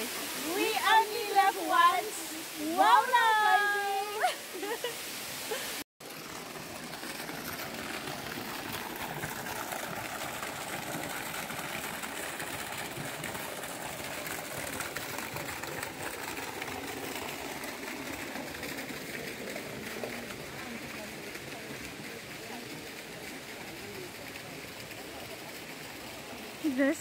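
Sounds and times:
waterfall rushing: 0.0 - 15.3.

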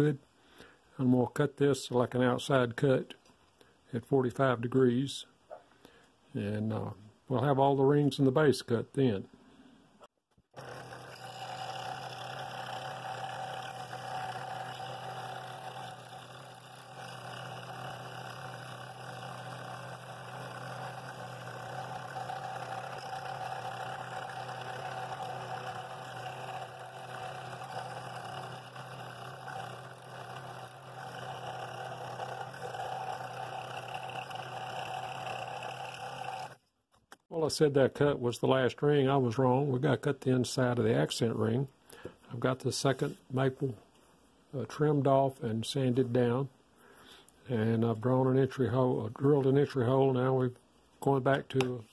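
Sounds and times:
scroll saw cutting wood: 10.5 - 36.6.

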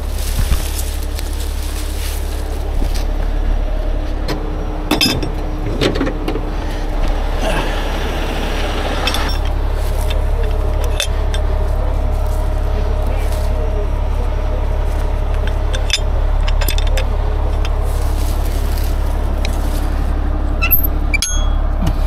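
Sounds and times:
rustling through brush: 0.0 - 4.2, 6.4 - 21.1
diesel engine rumbling: 0.0 - 22.0
chains clinking: 8.9 - 12.6, 14.9 - 19.8, 20.5 - 21.8.

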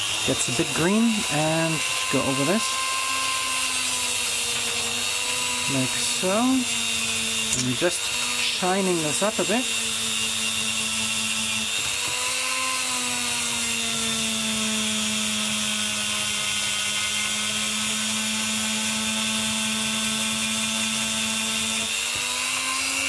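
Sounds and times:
rotary tool motor whine: 0.0 - 23.0.

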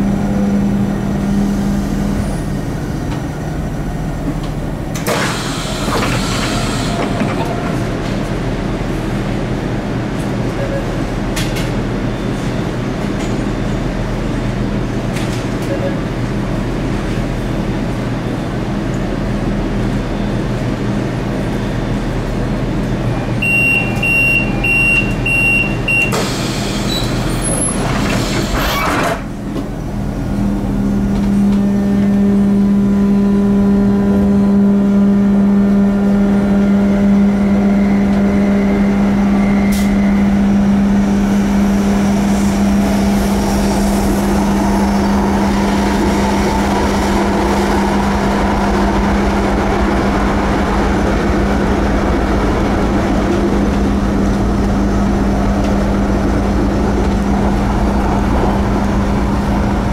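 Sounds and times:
tram equipment humming: 0.0 - 59.9
tram moving off droning: 0.0 - 59.9
short high warning beeps: 23.4 - 26.1.

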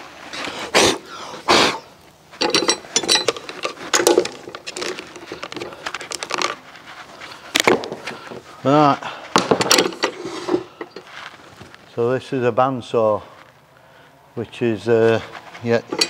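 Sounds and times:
metal tool knocks and clinks: 2.4 - 4.9.

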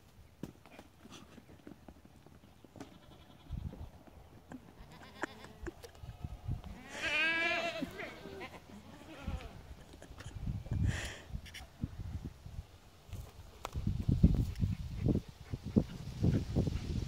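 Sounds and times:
lamb bleating: 6.8 - 9.5.

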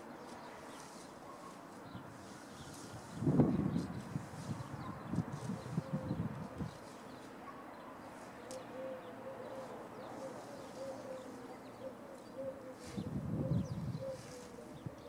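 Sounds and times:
wind rumble on microphone: 2.6 - 7.0, 12.9 - 15.0
faint bird chirps: 4.4 - 15.0
distant animal cooing: 8.6 - 15.0.

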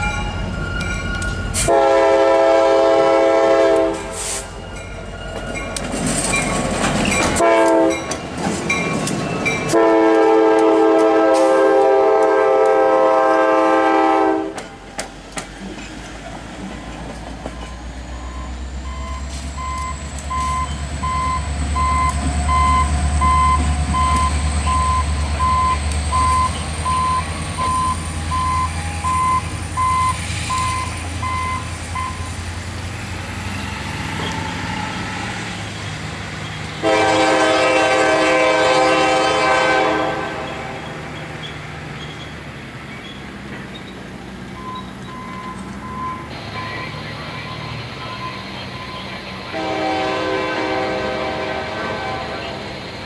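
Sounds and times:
locomotive bell dinging: 0.0 - 1.7, 4.5 - 10.0, 16.7 - 32.4, 40.5 - 49.6
locomotive horn chord: 1.6 - 4.3, 7.4 - 8.0, 9.7 - 14.6, 36.8 - 41.0, 49.4 - 52.7
diesel engine rumbling low: 15.6 - 36.9.

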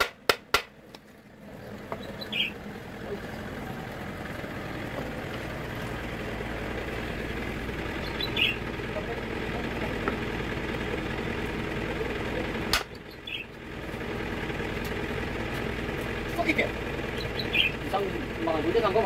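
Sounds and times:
engine idling: 0.0 - 19.0
bird chirp: 1.5 - 3.5, 7.9 - 8.7, 12.9 - 13.6, 17.1 - 17.9.

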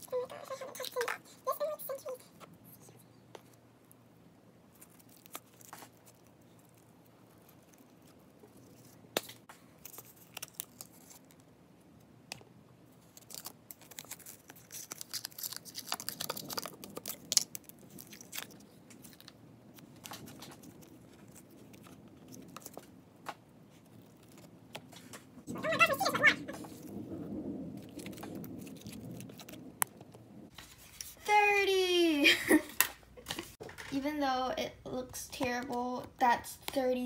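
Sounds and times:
sticky slime clicks and crackles: 12.3 - 22.9.

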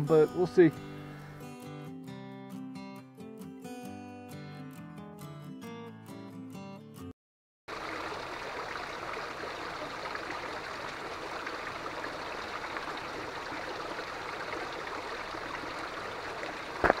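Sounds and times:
stream running over rocks: 7.7 - 17.0.

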